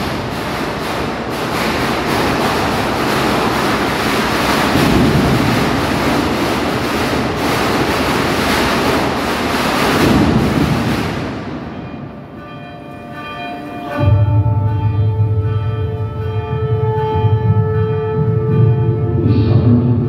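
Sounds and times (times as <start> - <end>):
loud rushing rumble: 0.0 - 12.4, 14.0 - 20.0
deep held note: 13.6 - 20.0.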